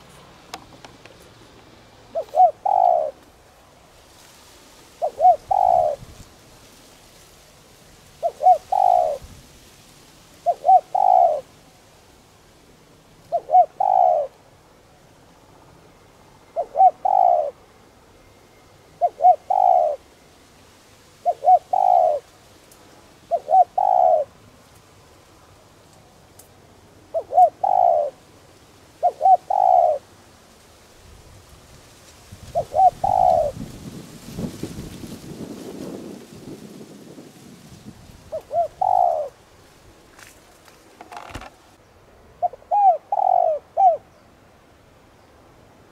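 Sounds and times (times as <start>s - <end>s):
dove cooing: 2.1s - 3.2s, 5.0s - 6.1s, 8.2s - 9.3s, 10.4s - 11.5s, 13.2s - 14.4s, 16.5s - 17.6s, 19.0s - 20.1s, 21.2s - 22.3s, 23.3s - 24.4s, 27.1s - 28.2s, 29.0s - 30.1s, 32.4s - 33.8s, 38.2s - 39.4s, 42.4s - 44.1s.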